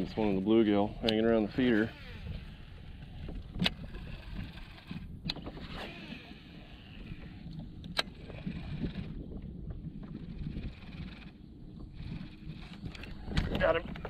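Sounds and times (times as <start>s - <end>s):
fishing reel being cranked: 0.0s - 9.3s, 10.0s - 13.4s.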